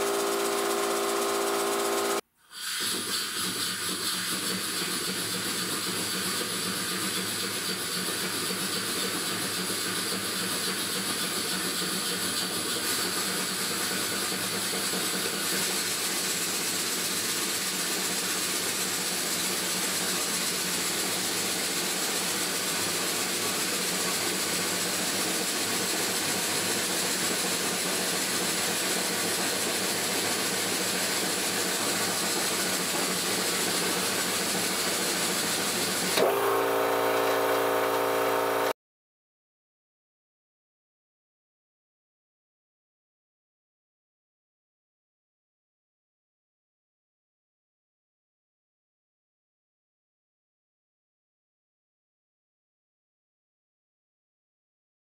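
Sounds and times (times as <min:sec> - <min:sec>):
model steam engine hissing: 0:00.0 - 0:38.7.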